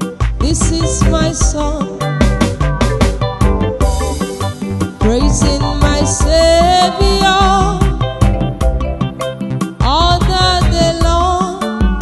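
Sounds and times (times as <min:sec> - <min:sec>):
electronic keyboard with drum beat: 0:00.0 - 0:12.0
woman singing a hymn: 0:00.4 - 0:02.1, 0:05.0 - 0:08.0, 0:09.8 - 0:12.0.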